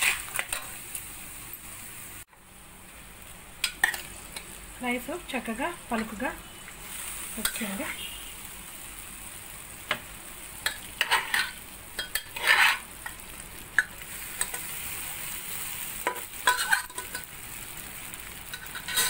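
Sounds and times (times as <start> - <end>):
metal ladle scraping metal pan: 0.0 - 0.8, 10.7 - 12.9, 16.1 - 17.3, 18.5 - 19.0
high hiss of frying: 0.0 - 19.0.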